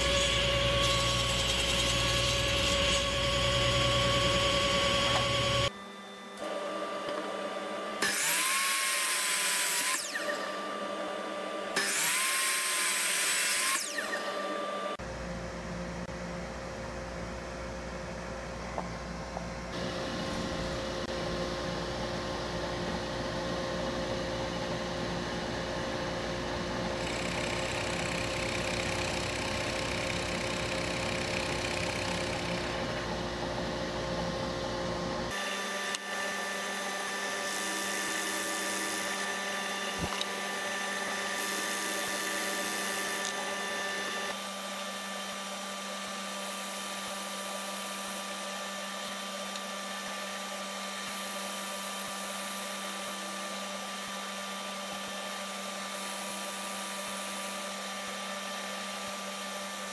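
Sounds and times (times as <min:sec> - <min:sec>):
drill press motor running: 0:00.0 - 0:15.0, 0:26.2 - 0:59.9
drill bit cutting wood hiss: 0:35.4 - 0:44.3.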